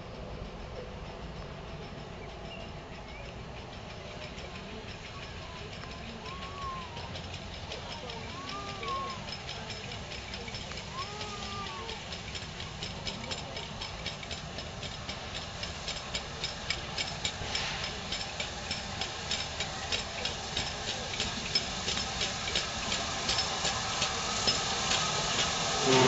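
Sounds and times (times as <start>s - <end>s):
locomotive chuffing strokes: 0.0s - 26.0s
steam locomotive hissing: 0.0s - 26.0s.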